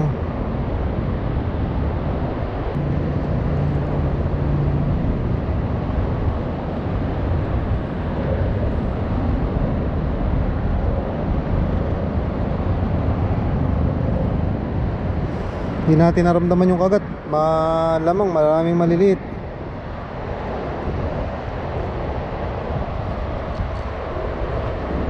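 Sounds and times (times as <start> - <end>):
engine hum: 0.0 - 25.0
traffic rumble on a bridge: 0.0 - 25.0.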